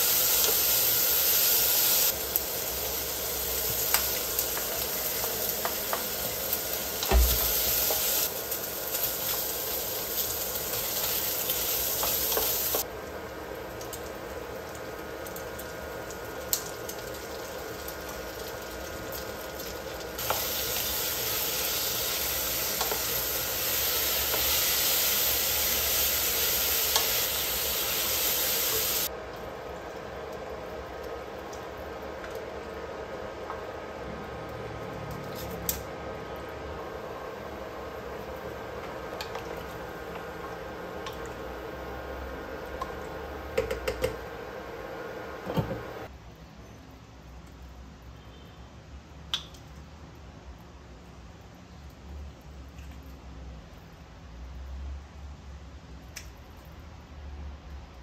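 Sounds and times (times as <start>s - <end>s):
meat sizzling in a pot: 0.0s - 29.2s.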